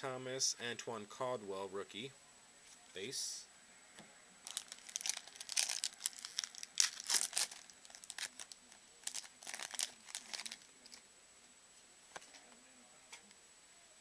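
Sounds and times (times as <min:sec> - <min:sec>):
foil wrapper crinkling and tearing: 0:04.5 - 0:10.7.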